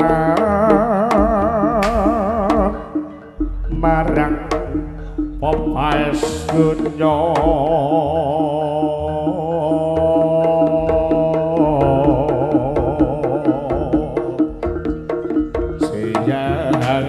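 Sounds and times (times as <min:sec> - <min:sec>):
gamelan drone: 0:00.0 - 0:17.0
hand-drum strokes: 0:00.0 - 0:17.0
person singing with vibrato: 0:00.0 - 0:17.0.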